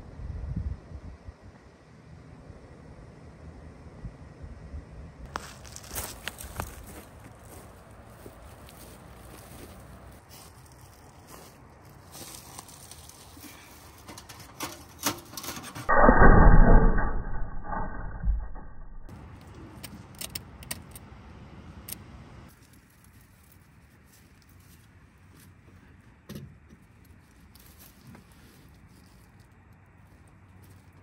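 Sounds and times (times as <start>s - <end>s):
metal clinking and rattling: 13.9s - 19.0s
loud low rumbling: 15.9s - 19.1s.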